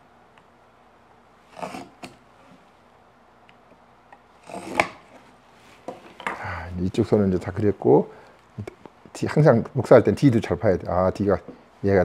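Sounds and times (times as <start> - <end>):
knife scraping wood: 1.5 - 2.6, 4.4 - 6.2.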